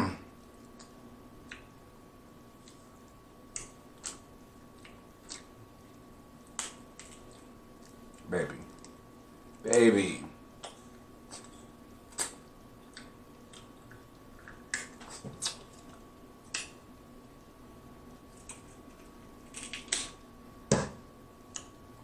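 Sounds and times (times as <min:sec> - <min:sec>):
faint steady hum: 0:00.0 - 0:22.0
crab shell snapping: 0:06.5 - 0:07.2, 0:19.5 - 0:20.8.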